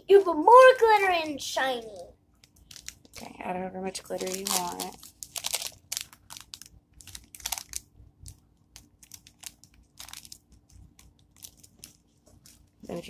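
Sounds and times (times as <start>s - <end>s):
faint steady hum: 0.0s - 13.0s
packet crinkling and clicking: 2.4s - 3.3s, 4.1s - 13.0s.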